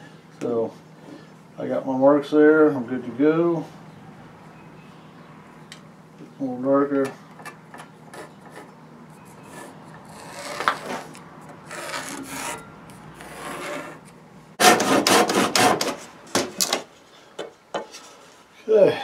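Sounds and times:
marking tool scratching wood: 8.1 - 12.6, 14.6 - 16.0
handsaw cutting wood: 9.4 - 12.6, 13.2 - 14.0, 14.6 - 16.1.

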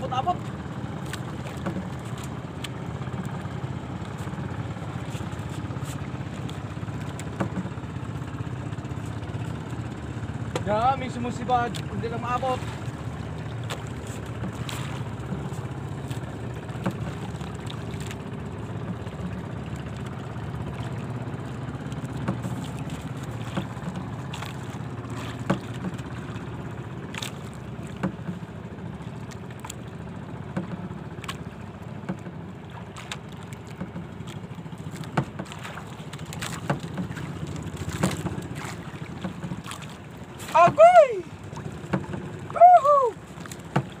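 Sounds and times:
wind and sea water rushing: 0.0 - 44.0
sharp knocks and clicks: 1.1 - 2.8, 7.1 - 7.8, 16.8 - 17.1, 22.1 - 24.6, 25.2 - 26.2, 27.1 - 28.5, 30.5 - 32.4, 33.0 - 39.9, 41.8 - 42.4, 43.4 - 44.0.

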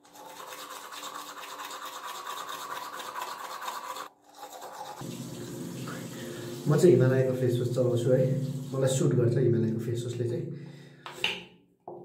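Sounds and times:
toothbrush scrubbing teeth: 0.0 - 6.8.

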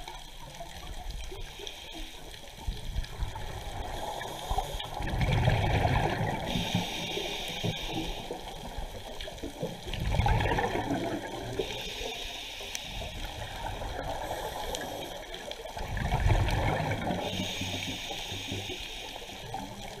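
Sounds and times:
exhaled bubbles gurgling: 0.0 - 12.1, 13.0 - 18.7
regulator inhale hiss: 1.2 - 5.0, 6.3 - 9.1, 11.5 - 15.7, 17.0 - 20.0.

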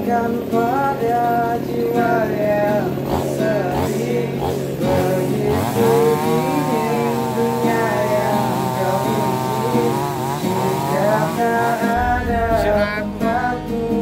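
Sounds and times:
chainsaw cutting log: 3.0 - 12.0.

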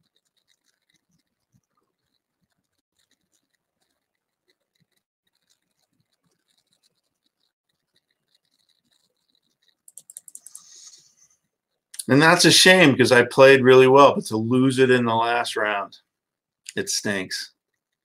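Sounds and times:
faint scattered ticks: 0.0 - 12.2.

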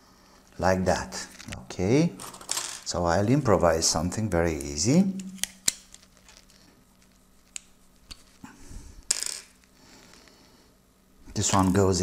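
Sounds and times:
small metal connectors clicking: 4.6 - 8.3.

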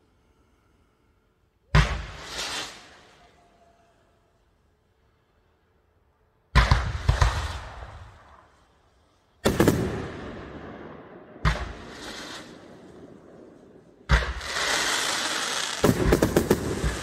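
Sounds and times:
fireworks bangs: 6.6 - 8.5, 9.4 - 17.0.

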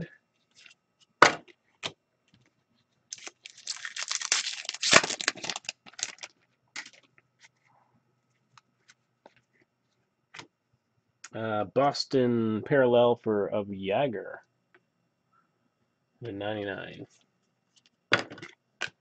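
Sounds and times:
wrapper tearing and crinkling: 3.1 - 7.0.

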